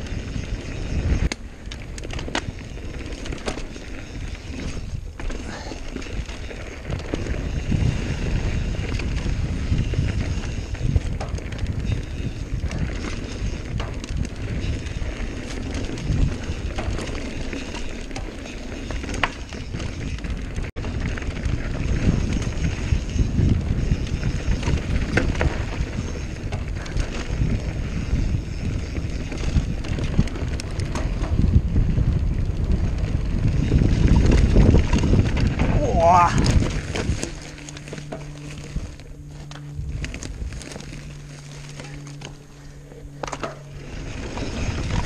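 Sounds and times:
bike clicks and rattles: 0.0s - 45.0s
bike tyres on dirt trail: 0.0s - 45.0s
wind buffeting microphone: 0.0s - 45.0s.

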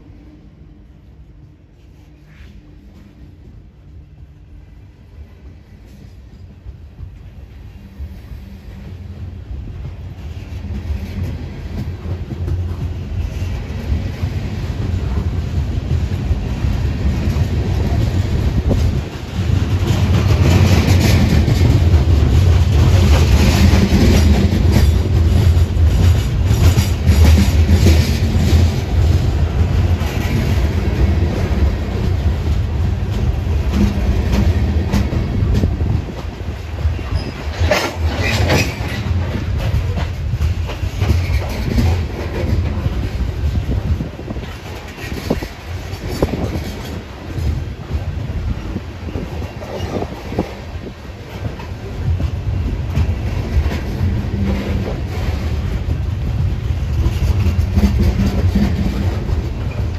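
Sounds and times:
freight train rumbling past: 0.0s - 59.9s
wheels clicking over rail joints: 14.8s - 48.4s, 49.1s - 59.9s.

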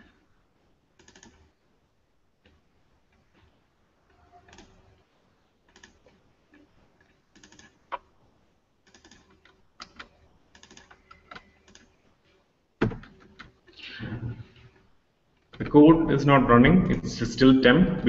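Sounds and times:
faint computer keyboard typing: 1.0s - 1.5s, 4.1s - 5.1s, 5.7s - 8.0s, 8.8s - 12.0s.

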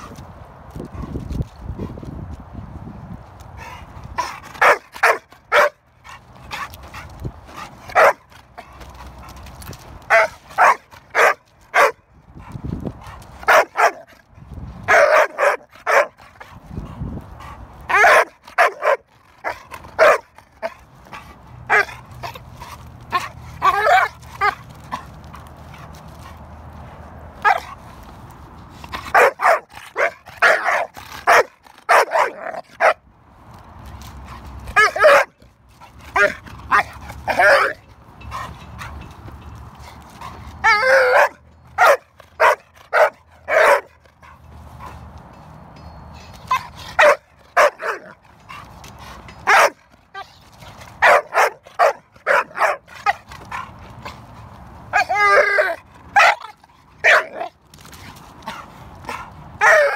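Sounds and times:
dog barking: 4.6s - 5.8s, 7.9s - 8.2s, 10.1s - 12.0s, 13.5s - 14.0s, 14.9s - 16.1s, 20.0s - 20.2s, 29.1s - 33.0s, 41.1s - 43.9s, 47.0s - 48.0s, 49.5s - 49.8s, 51.0s - 52.8s, 57.0s - 57.4s.

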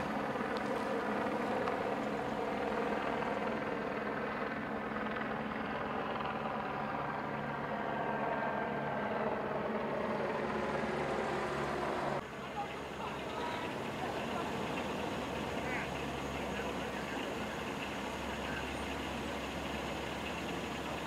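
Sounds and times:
engines droning: 0.0s - 21.0s.

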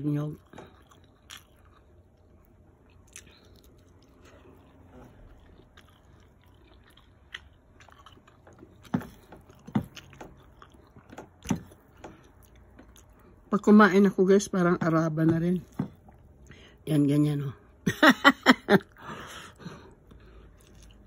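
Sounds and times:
person chewing food: 0.3s - 13.5s, 15.7s - 16.6s, 18.8s - 21.0s.

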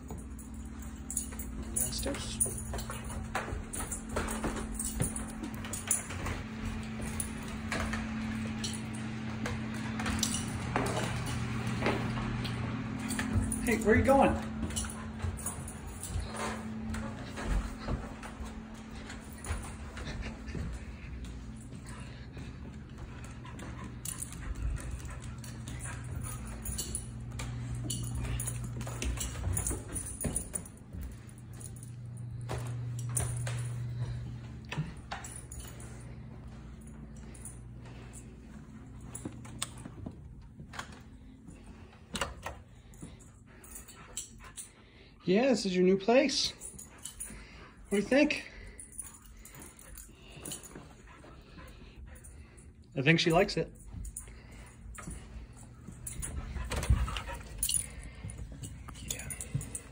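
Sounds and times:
steady low hum: 0.0s - 45.3s, 46.2s - 59.9s
collar tags jingling: 0.0s - 59.9s.

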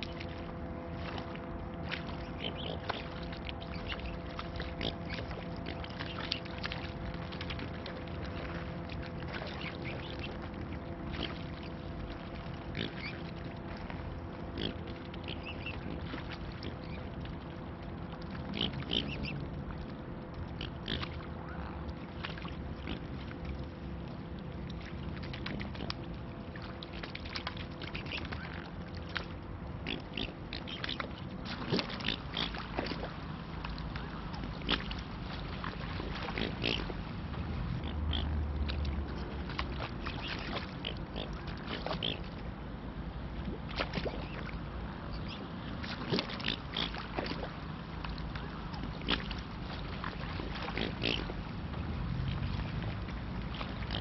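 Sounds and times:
low hum: 0.0s - 54.0s
water splashing: 0.0s - 54.0s
swan grunting calls: 1.9s - 6.4s, 29.8s - 33.1s, 35.6s - 37.0s, 45.1s - 47.5s, 50.0s - 51.4s.

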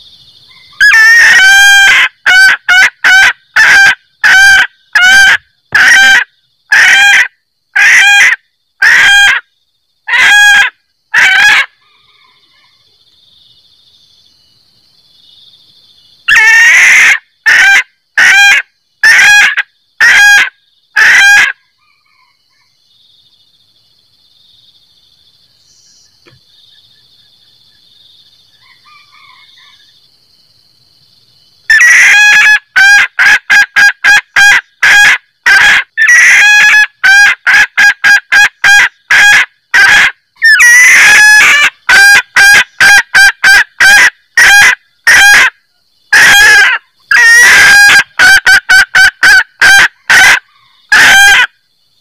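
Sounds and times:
hen cackling: 0.5s - 9.5s, 10.1s - 12.8s, 16.3s - 22.7s, 31.7s - 51.6s.

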